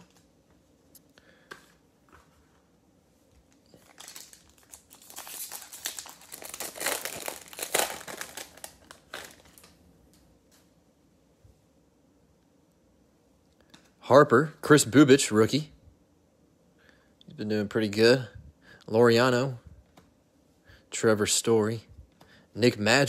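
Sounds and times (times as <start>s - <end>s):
foil wrapper crinkling and tearing: 3.5s - 9.8s.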